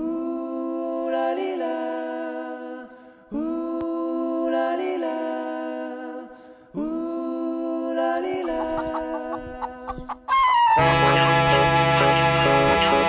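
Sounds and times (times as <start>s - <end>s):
unaccompanied voices singing: 0.0s - 10.3s.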